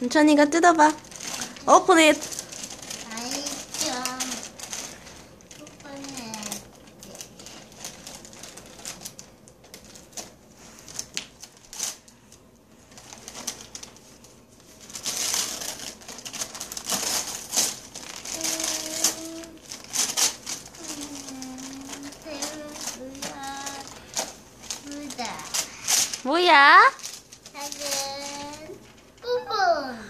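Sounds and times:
plastic packet crinkling and tearing: 0.6s - 29.2s.

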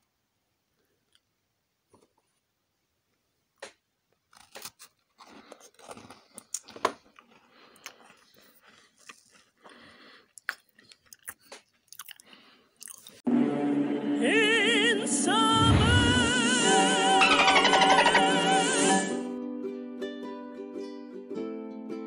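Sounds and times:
cookie crunching: 3.6s - 13.2s
chewing: 4.3s - 13.2s.

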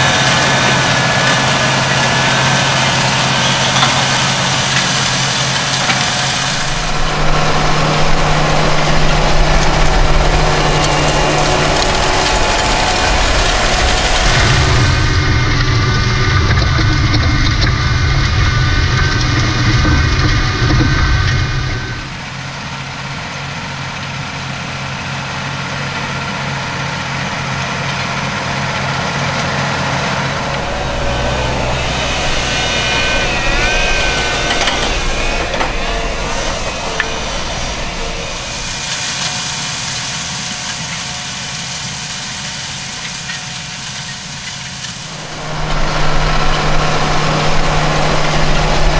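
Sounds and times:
steady whine: 0.0s - 48.9s
tractor diesel engine under load: 0.0s - 48.9s
seed drill working: 1.7s - 22.4s, 30.1s - 40.5s.

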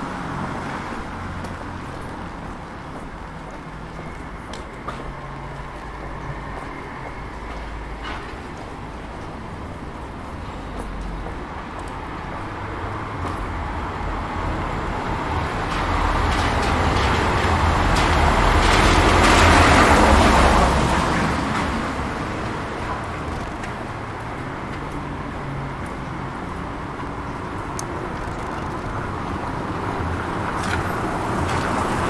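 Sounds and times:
van driving on wet cobblestones: 0.0s - 32.0s.

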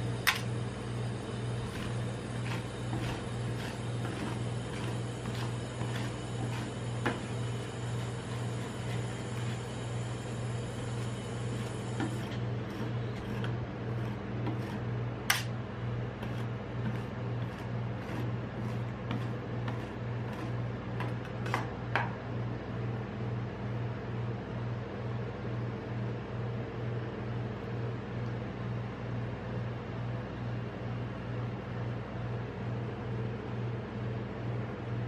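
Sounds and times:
pulsing machine hum: 0.0s - 21.8s.

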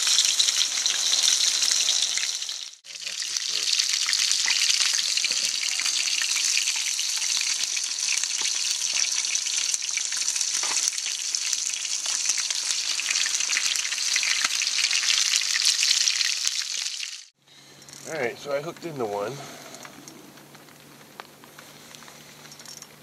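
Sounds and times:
fish frying in oil: 0.0s - 17.3s
crackles and pops of frying: 0.0s - 23.0s.

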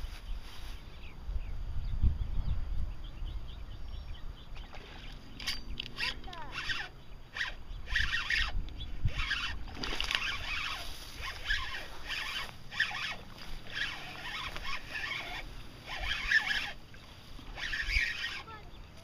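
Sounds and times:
fishing reel ratchety whir: 4.8s - 18.6s.

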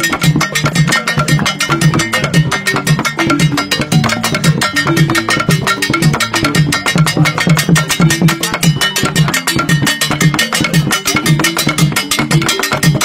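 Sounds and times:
drums and percussion strikes: 0.0s - 13.0s
wooden xylophones playing: 0.0s - 13.0s.

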